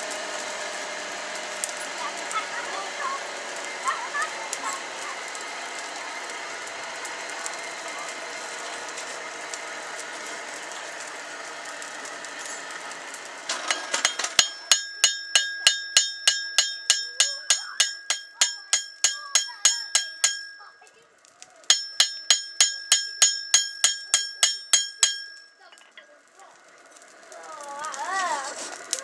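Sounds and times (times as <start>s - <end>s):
hammer striking blade on anvil: 13.5s - 20.8s, 21.7s - 25.9s.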